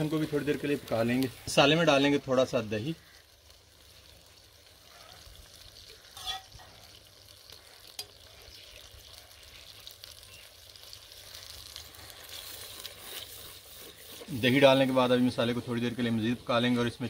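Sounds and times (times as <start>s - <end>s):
spices sizzling in a pan: 0.0s - 17.0s
spoon scraping while stirring: 6.2s - 6.6s, 12.3s - 14.4s.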